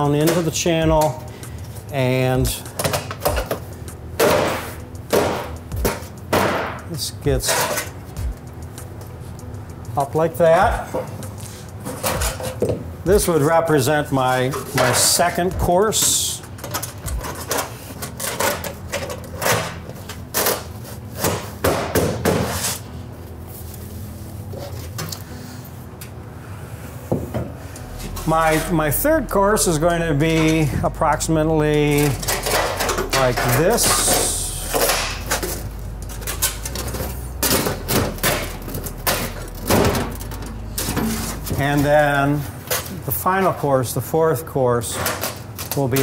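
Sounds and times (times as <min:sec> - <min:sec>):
metal shingles clicking and rattling: 0:14.1 - 0:21.4, 0:28.1 - 0:43.3, 0:44.9 - 0:46.0.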